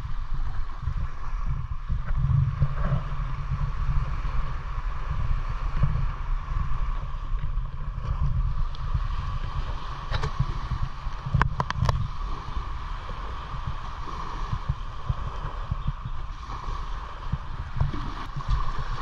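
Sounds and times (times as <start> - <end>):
small waves washing on shore: 0.0 - 19.0
wind buffeting microphone: 0.0 - 19.0.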